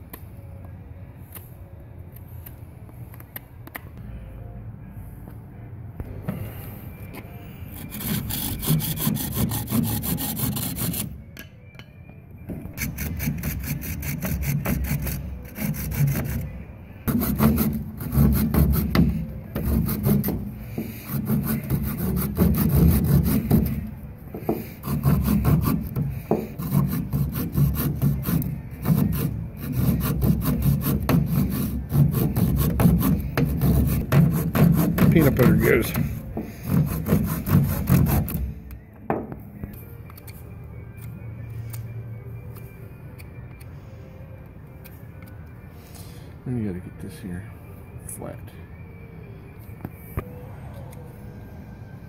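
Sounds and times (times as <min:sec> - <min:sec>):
hand saw cutting wood: 0:07.8 - 0:11.1, 0:12.8 - 0:16.5, 0:17.1 - 0:23.8, 0:24.5 - 0:38.4.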